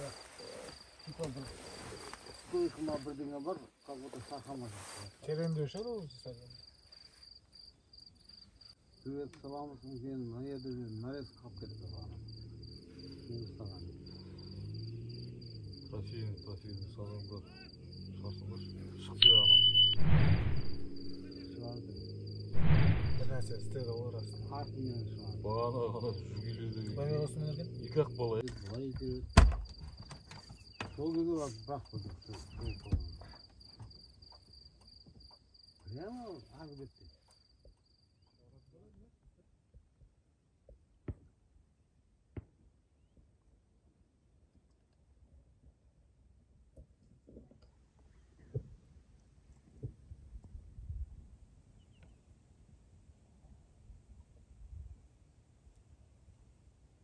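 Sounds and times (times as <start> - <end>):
crickets chirping: 0.0 - 39.2
people talking in low voices: 23.2 - 29.3.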